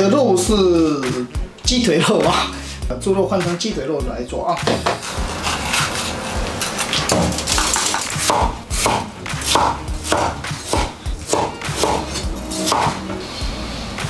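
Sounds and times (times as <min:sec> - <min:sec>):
cleaver chopping on wooden board: 0:07.0 - 0:13.0.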